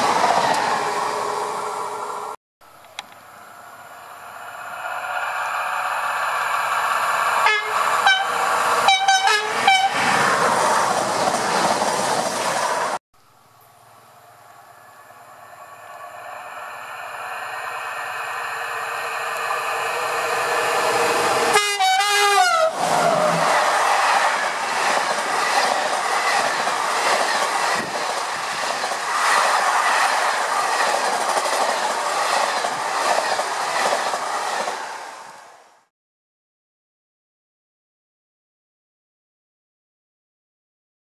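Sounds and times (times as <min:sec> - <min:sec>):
electric locomotives approaching: 0:00.0 - 0:35.9
train horn: 0:07.4 - 0:10.0, 0:21.4 - 0:23.4.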